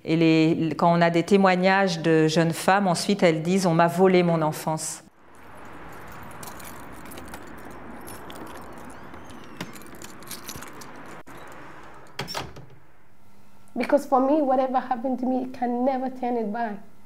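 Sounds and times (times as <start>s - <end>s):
keys jangling: 5.4s - 12.4s
wooden door unlocked and opened: 8.2s - 12.8s.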